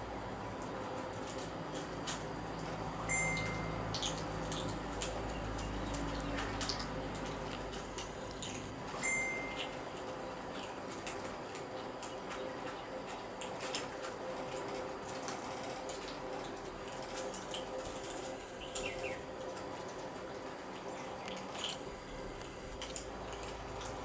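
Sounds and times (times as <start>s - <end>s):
kittens crunching dry kibble: 0.4s - 3.0s, 3.9s - 24.0s.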